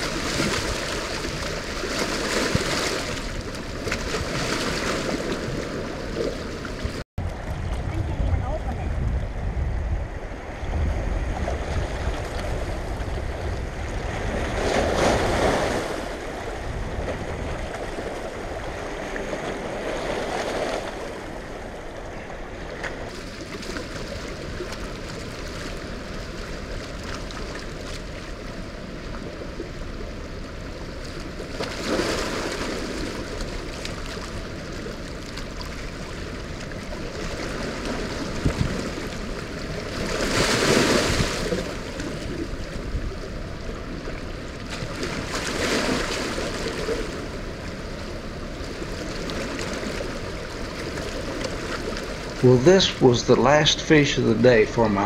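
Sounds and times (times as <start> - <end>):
heavy rushing water: 0.0 - 9.5, 10.6 - 55.0
wind buffeting microphone: 5.1 - 21.8, 32.9 - 46.4.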